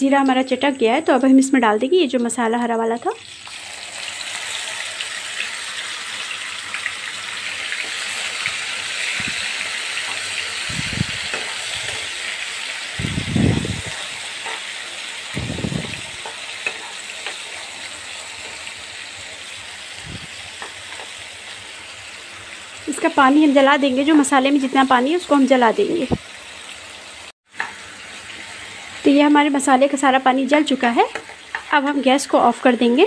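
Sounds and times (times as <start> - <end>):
paste sizzling in hot oil: 0.0 - 33.0
steel spoon stirring in pan: 7.8 - 12.5, 13.7 - 19.6.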